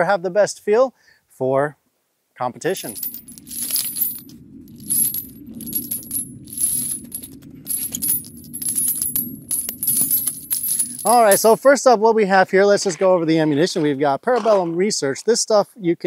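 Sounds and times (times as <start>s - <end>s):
low steady rumble: 2.7s - 11.6s
metal casings clinking: 2.8s - 11.6s.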